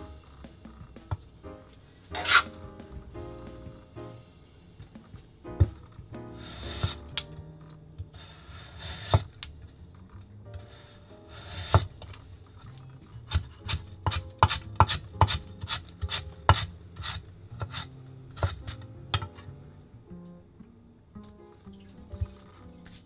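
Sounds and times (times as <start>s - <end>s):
knife slicing through carrot: 2.1s - 2.6s, 6.4s - 7.2s, 11.3s - 12.0s, 13.2s - 18.9s
knife chopping on wooden board: 2.1s - 3.0s, 6.5s - 7.4s, 8.8s - 9.4s, 11.5s - 12.1s, 13.2s - 19.4s.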